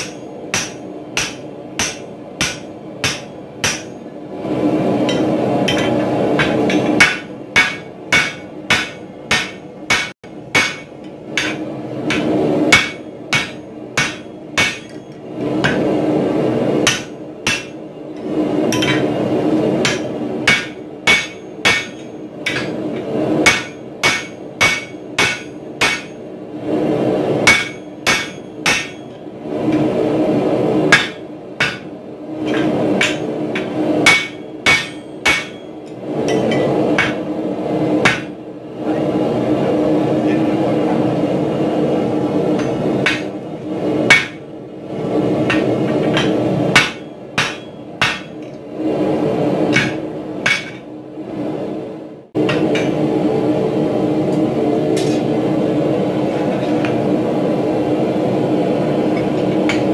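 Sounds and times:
hammer striking metal tool: 0:00.0 - 0:04.0, 0:05.1 - 0:15.8, 0:16.9 - 0:17.8, 0:19.8 - 0:26.2, 0:27.5 - 0:29.2, 0:30.9 - 0:37.2, 0:44.1 - 0:44.4, 0:45.5 - 0:48.4, 0:49.7 - 0:50.8.

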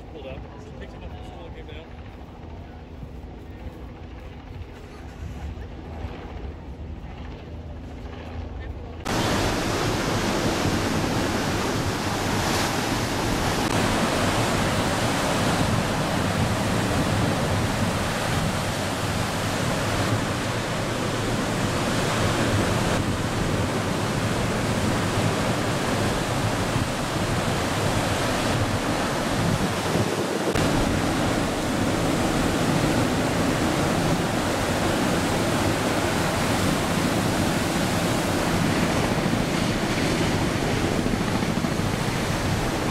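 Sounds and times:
wind: 0:00.0 - 0:42.9
ocean waves breaking: 0:09.0 - 0:42.9.

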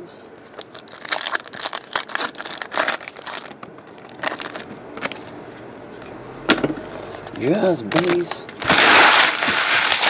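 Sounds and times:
foil wrapper crinkling and tearing: 0:00.5 - 0:05.4, 0:07.9 - 0:10.0.

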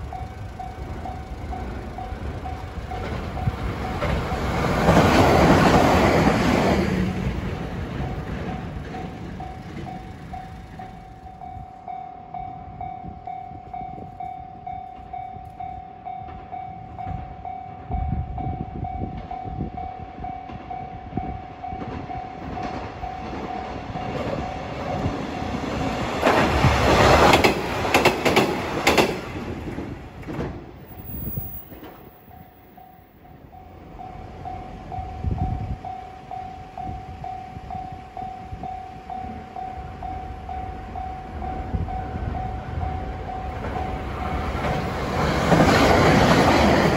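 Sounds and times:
train wheels clattering: 0:21.7 - 0:33.7, 0:43.4 - 0:46.9.

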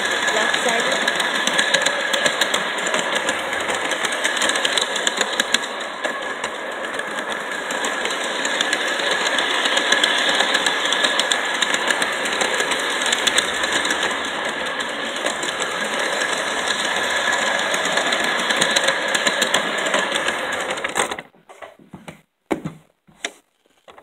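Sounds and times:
model train motor whirring: 0:00.0 - 0:21.3
train rattling and clicking on track: 0:00.0 - 0:21.7.

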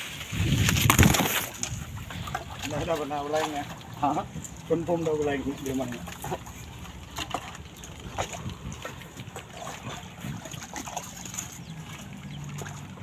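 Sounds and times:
hoes chopping wet mud: 0:00.5 - 0:01.8.

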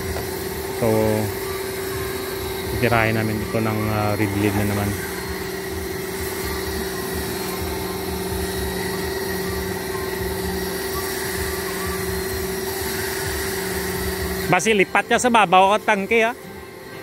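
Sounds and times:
small motor humming: 0:00.0 - 0:17.0.

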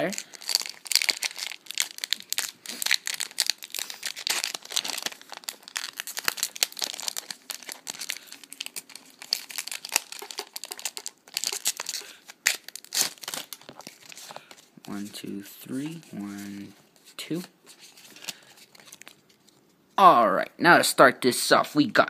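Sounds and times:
foil wrapper crinkling and tearing: 0:00.0 - 0:14.6, 0:17.9 - 0:19.5.

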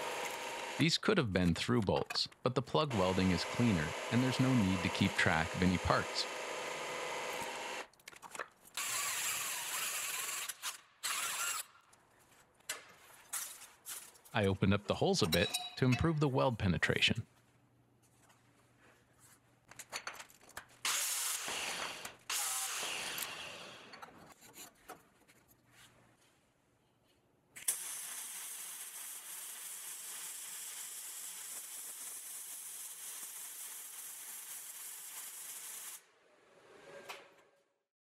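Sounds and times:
welding arc hissing: 0:27.6 - 0:36.0.

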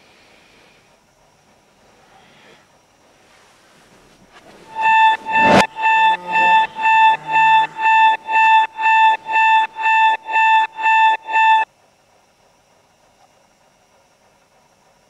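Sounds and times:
alarm clock beeping: 0:04.6 - 0:11.6.

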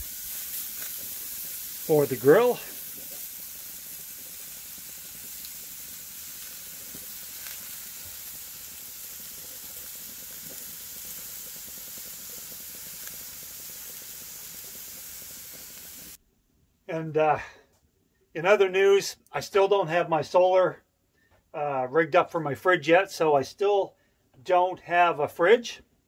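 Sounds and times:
faint fire pops: 0:00.0 - 0:16.2
steak sizzling on a grill: 0:00.0 - 0:16.2.

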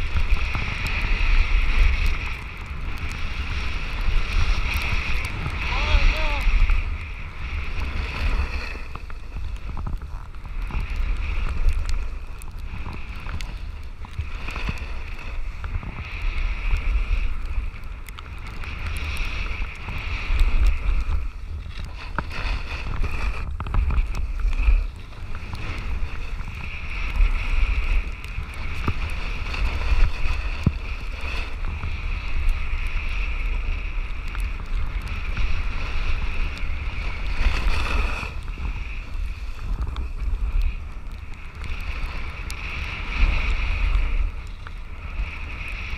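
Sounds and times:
snowboard sliding through snow: 0:00.0 - 0:45.9
wind buffeting microphone: 0:00.0 - 0:45.9.

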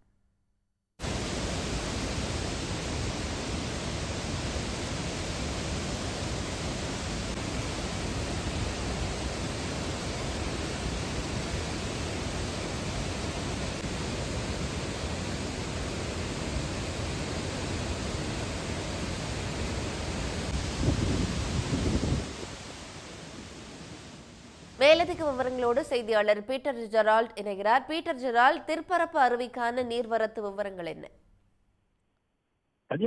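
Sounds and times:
waterfall rushing: 0:01.0 - 0:25.6.

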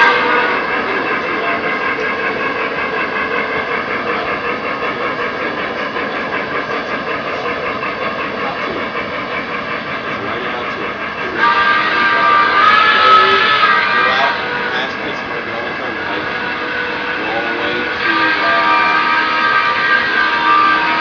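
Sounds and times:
model train wheels clattering: 0:00.0 - 0:21.0.

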